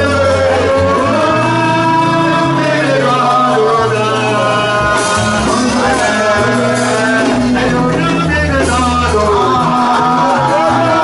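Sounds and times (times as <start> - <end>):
band with keyboard and drums: 0.0 - 11.0
man singing into microphone: 0.0 - 11.0.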